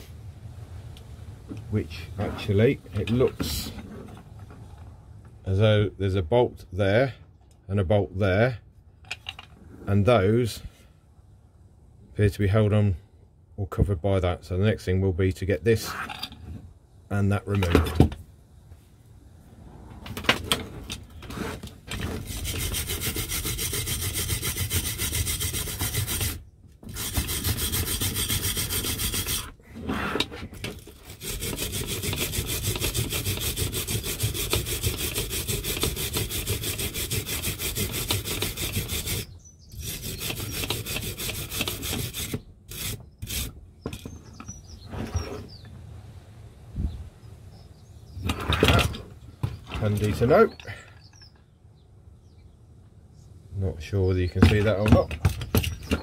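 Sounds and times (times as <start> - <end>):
wire brush scraping steel: 20.5 - 44.2.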